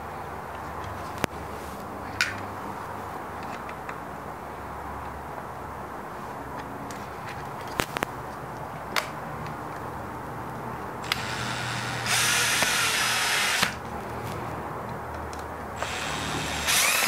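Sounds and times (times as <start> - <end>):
cordless drill driving a screw: 11.0 - 13.8, 15.8 - 17.0.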